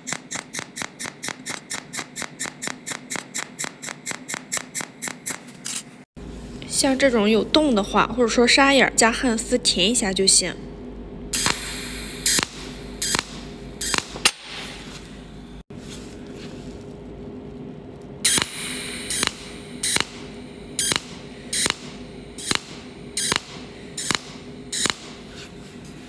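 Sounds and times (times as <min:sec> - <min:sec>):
welding arc zaps: 0:00.0 - 0:06.0, 0:11.3 - 0:15.1, 0:18.2 - 0:25.8
low hum: 0:06.2 - 0:26.0.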